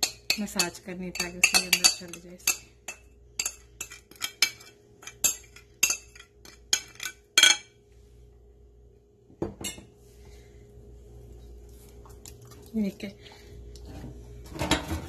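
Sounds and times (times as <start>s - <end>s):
spoon clicking and scraping bowl: 0.0s - 7.7s.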